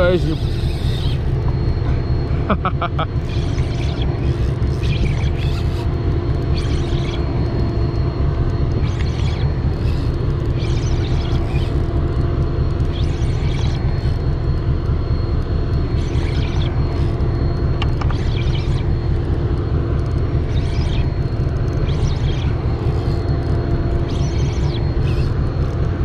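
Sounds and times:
low engine rumble: 0.0s - 26.0s.

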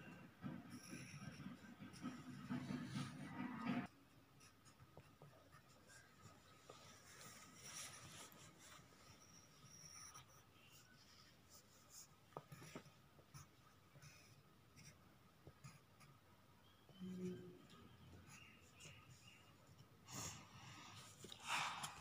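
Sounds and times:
pencil scratching on paper: 0.5s - 3.6s, 4.4s - 16.1s.

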